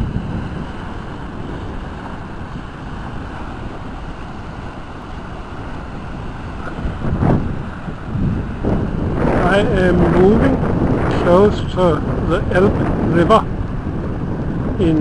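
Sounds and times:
wind blowing across microphone: 0:00.0 - 0:15.0.

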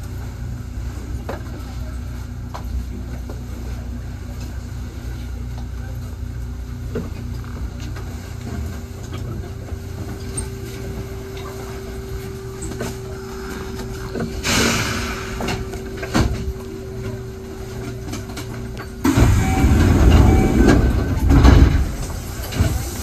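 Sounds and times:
train rumbling: 0:00.0 - 0:23.0
air hissing: 0:13.1 - 0:15.9.

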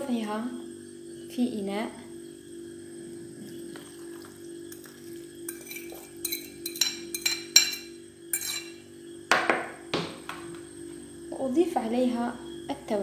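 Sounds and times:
steady low hum: 0:00.0 - 0:13.0
metal utensil clinking against bowl: 0:05.5 - 0:08.8.

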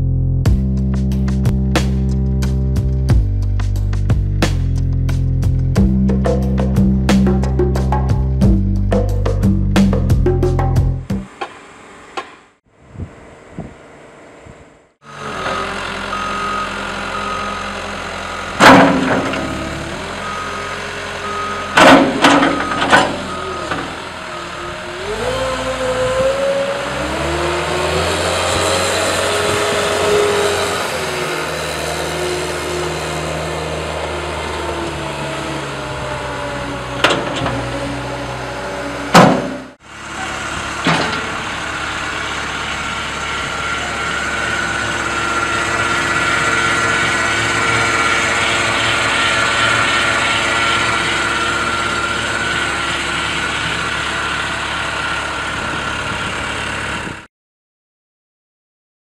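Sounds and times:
diesel engine running and revving: 0:00.0 - 0:11.4, 0:12.6 - 0:57.3
sharp loud knocks: 0:39.1 - 0:39.7.

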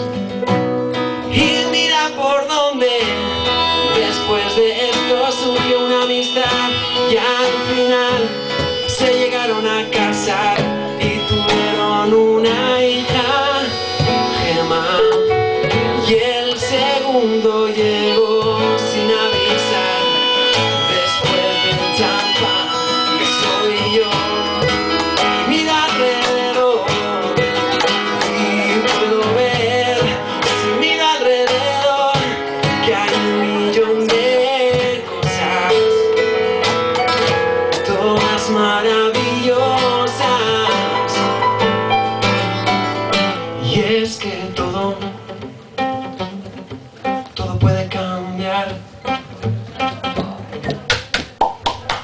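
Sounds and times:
keyboard: 0:00.0 - 0:45.8
cajon beat: 0:00.0 - 0:52.0
strummed acoustic guitar: 0:00.0 - 0:52.0.

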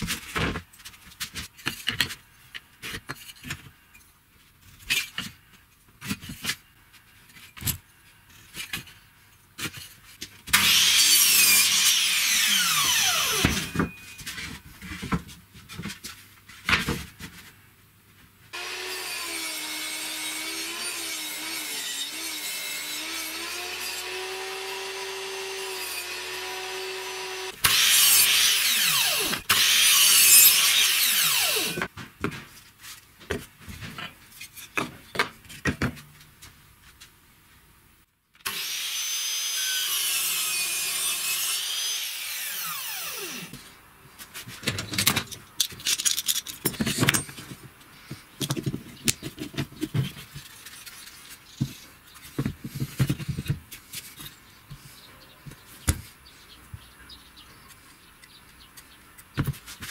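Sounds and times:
table saw cutting wood: 0:10.5 - 0:13.8, 0:18.6 - 0:31.9, 0:38.4 - 0:43.6
saw motor humming: 0:18.6 - 0:31.9, 0:38.5 - 0:43.6.

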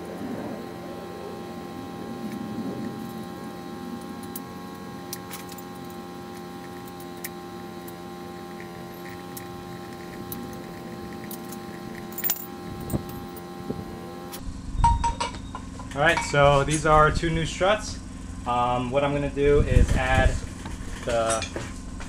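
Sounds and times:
steady hum: 0:00.0 - 0:22.0
wrench clinking on metal: 0:11.2 - 0:13.4.

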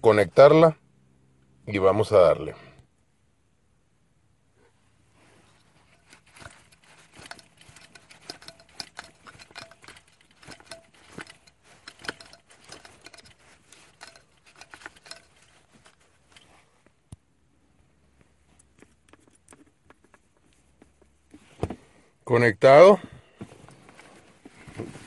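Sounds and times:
plastic clicks and rubbing: 0:05.6 - 0:17.2, 0:18.6 - 0:21.2.

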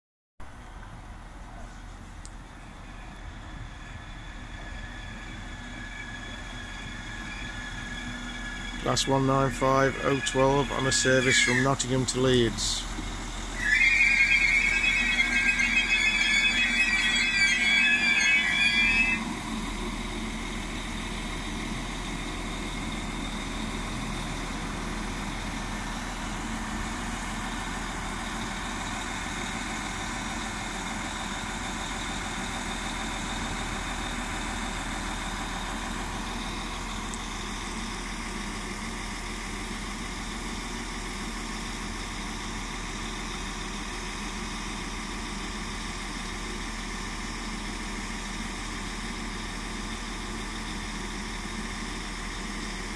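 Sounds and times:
diesel train engines idling: 0:00.4 - 0:52.9.

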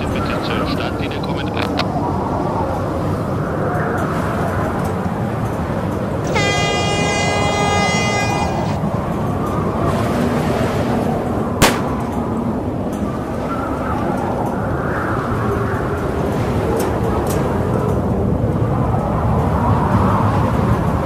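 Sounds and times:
wind and water rushing: 0:00.0 - 0:21.0
air horn blast: 0:06.2 - 0:08.8
starting pistol shot: 0:11.6 - 0:12.3.

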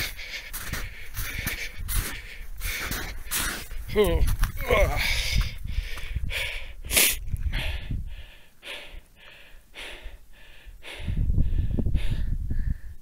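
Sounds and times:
heavy rapid breathing: 0:00.0 - 0:13.0
low rumbling on microphone: 0:10.7 - 0:13.0.

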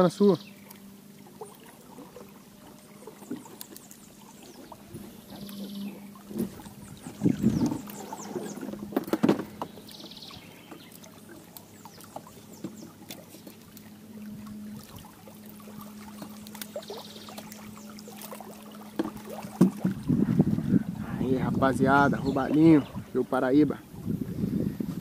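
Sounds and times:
steady low hum: 0:00.0 - 0:25.0
knocks in aluminium boat: 0:18.9 - 0:20.3.

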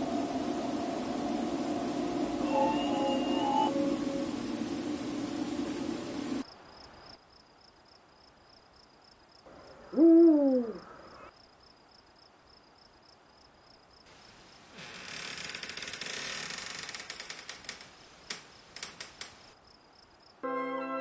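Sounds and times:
owl hooting: 0:00.0 - 0:06.4, 0:09.8 - 0:11.3
crickets chirping: 0:00.0 - 0:20.5
background music: 0:20.4 - 0:21.0.

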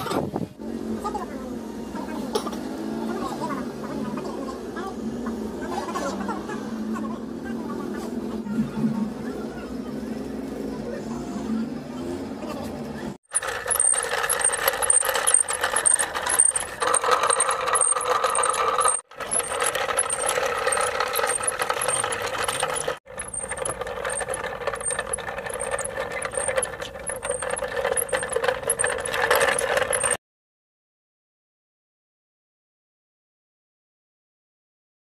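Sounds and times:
fast even ticking: 0:13.3 - 0:30.2
mechanical rattling: 0:13.3 - 0:30.2.

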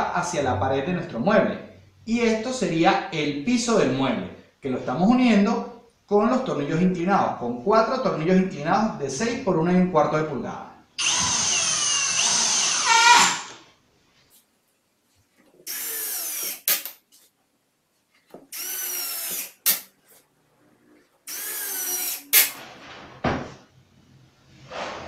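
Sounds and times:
cordless drill whining: 0:11.0 - 0:13.6, 0:15.7 - 0:16.7, 0:18.5 - 0:19.7, 0:21.3 - 0:22.6.

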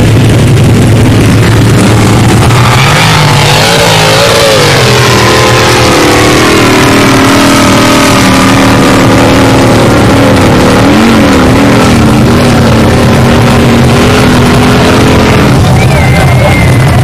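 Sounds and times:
buggy engine revving hard: 0:00.0 - 0:17.0.

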